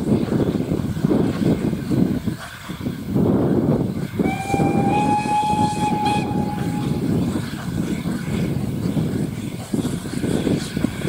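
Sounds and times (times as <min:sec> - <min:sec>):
steady low rumble: 0:03.0 - 0:11.0
steam locomotive whistle: 0:04.2 - 0:07.3.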